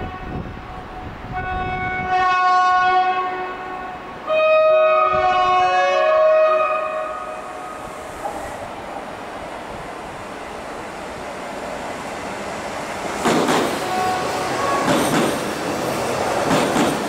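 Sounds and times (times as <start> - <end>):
train horn blasts: 0.0 - 7.8, 13.8 - 15.0
two-tone train horn blast: 0.0 - 7.8, 13.8 - 15.0
train running noise: 5.0 - 17.0.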